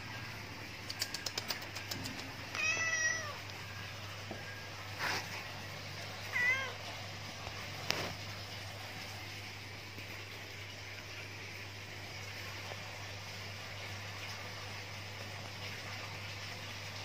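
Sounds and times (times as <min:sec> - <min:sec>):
cat meowing: 0:02.5 - 0:03.4, 0:06.3 - 0:06.8.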